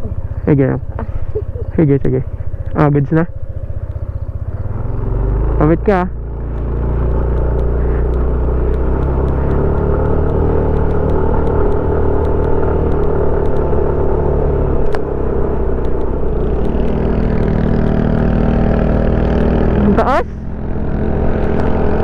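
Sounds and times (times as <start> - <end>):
scooter engine droning: 0.0 - 22.0
faint clicks: 3.8 - 4.7, 6.4 - 13.8, 15.8 - 17.5.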